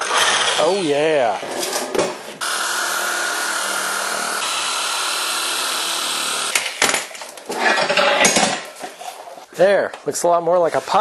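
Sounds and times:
electric shear cutting plastic: 0:02.4 - 0:06.7.

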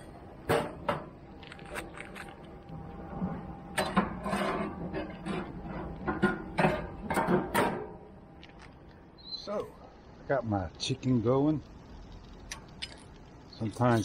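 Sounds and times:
metal grill utensils clattering: 0:03.8 - 0:07.9.

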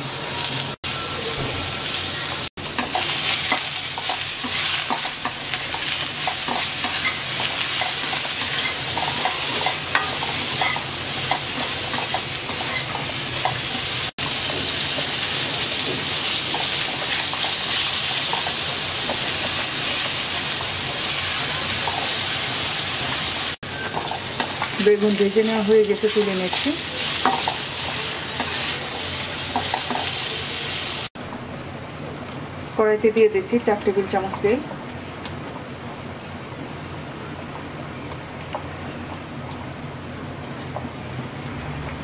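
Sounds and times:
eggplant sizzling in oil: 0:00.0 - 0:31.2.

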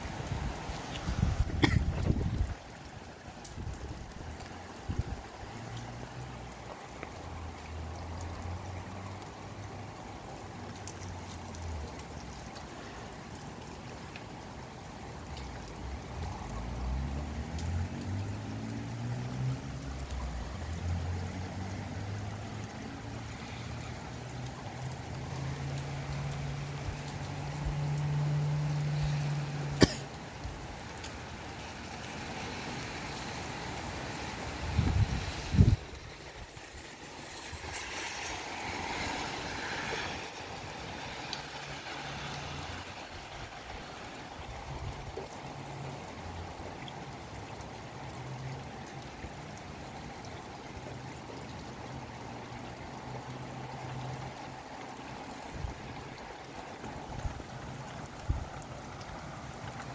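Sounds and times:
gusting wind: 0:00.0 - 0:05.4, 0:34.0 - 0:41.1
sharp ticks of raindrops: 0:00.0 - 0:59.9
steady hiss of rain: 0:00.0 - 0:59.9.

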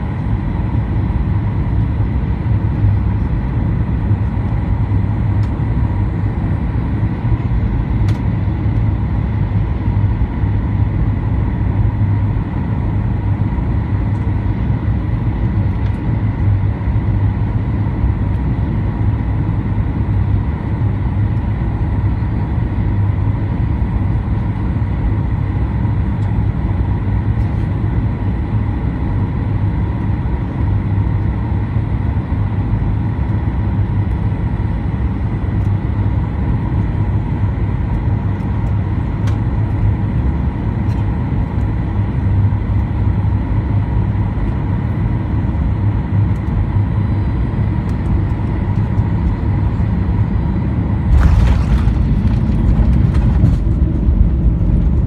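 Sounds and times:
jet engines roaring: 0:46.0 - 0:55.0.

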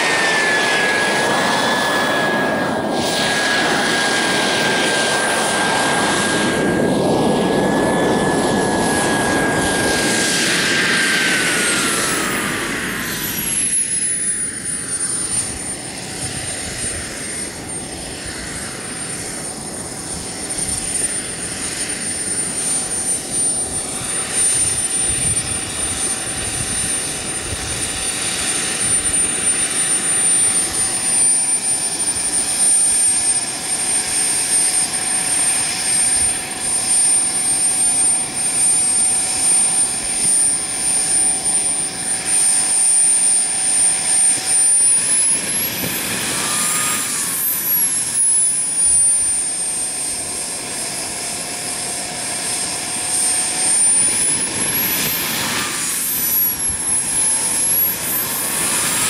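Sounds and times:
rushing exhaust: 0:00.0 - 0:30.9
model jet turbine whining: 0:00.0 - 0:59.0
high whistle: 0:35.3 - 0:41.8.

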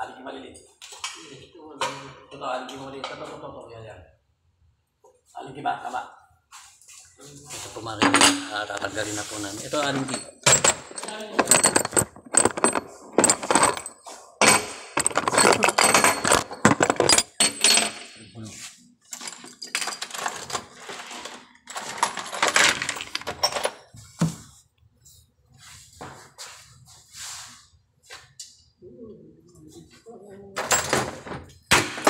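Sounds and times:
metal parts clinking: 0:08.0 - 0:08.8, 0:09.8 - 0:18.2, 0:19.1 - 0:23.8.

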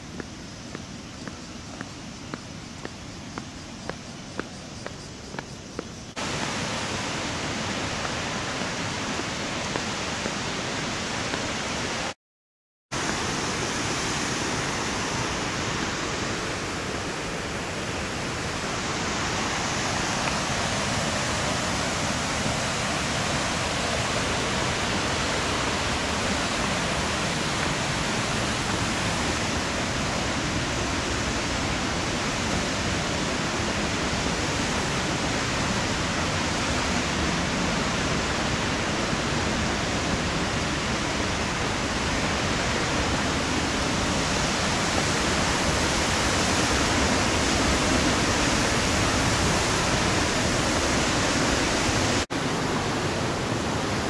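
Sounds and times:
water rushing: 0:00.0 - 0:12.2, 0:13.0 - 0:54.0.

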